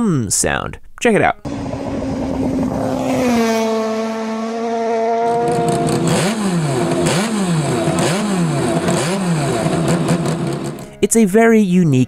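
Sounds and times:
motorcycle passing at speed: 1.5 - 10.8
motorcycle engine revving: 1.5 - 10.9.

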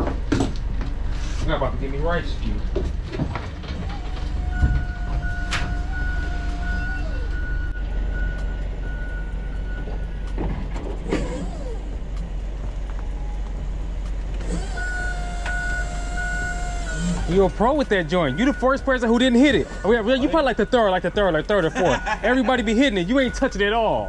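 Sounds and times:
forklift engine hum: 0.0 - 24.0
whine sliding down in pitch: 4.0 - 7.7
high beeps: 14.8 - 24.0.

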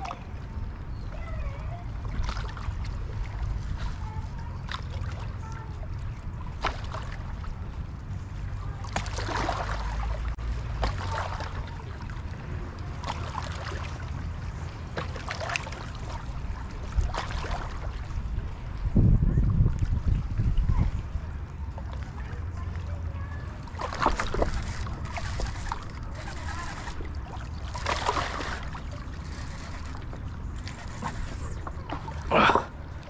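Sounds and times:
waves lapping against rocks: 8.7 - 21.1, 23.5 - 33.0
wind rumbling on microphone: 16.2 - 22.4.

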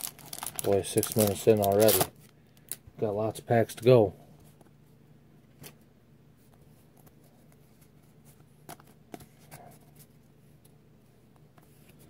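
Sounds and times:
trading cards rustling: 0.0 - 2.8.

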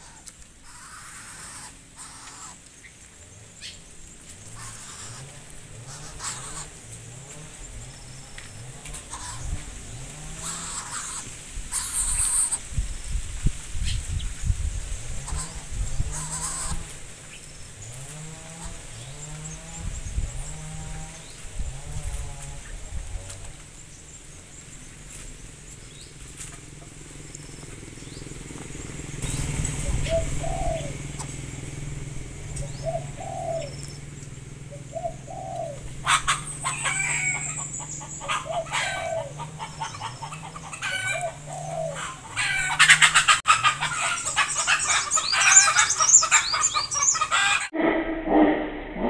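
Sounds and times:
chickens clucking: 4.5 - 12.6, 15.2 - 17.0, 32.4 - 49.0.

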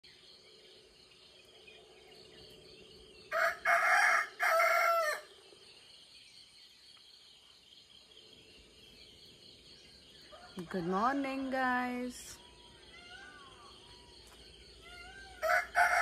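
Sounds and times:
insect chirring: 0.0 - 16.0
rooster crowing: 3.3 - 5.3, 15.0 - 16.0.

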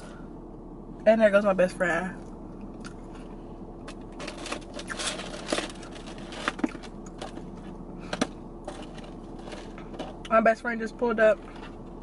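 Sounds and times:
steady hum: 0.0 - 12.0.

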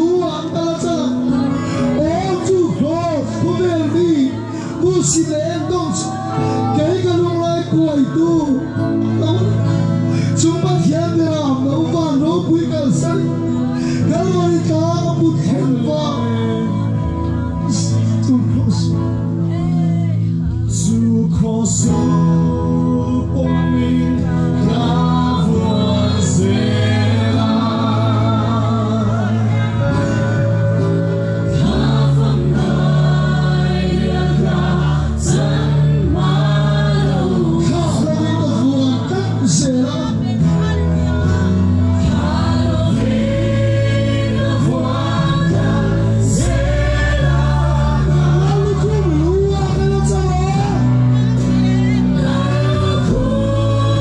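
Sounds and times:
gospel band playing: 0.0 - 54.0
many voices singing along: 0.0 - 54.0.

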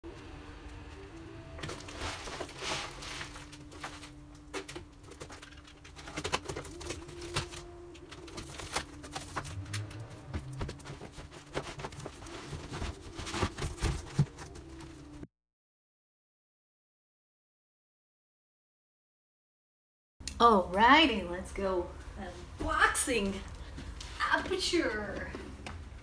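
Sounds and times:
cardboard scraping and rustling: 1.6 - 4.6, 5.2 - 15.2.

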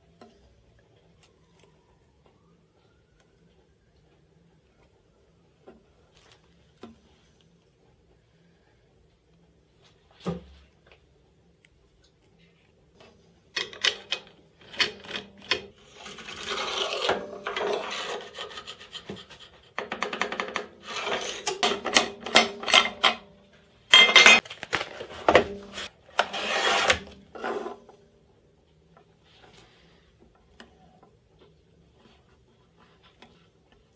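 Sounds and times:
metal bar sliding in slot: 25.6 - 27.8.

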